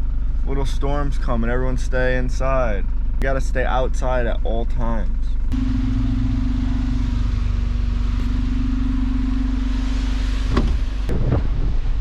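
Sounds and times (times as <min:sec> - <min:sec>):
steady hum: 0:00.0 - 0:12.0
road and wind noise: 0:05.5 - 0:12.0.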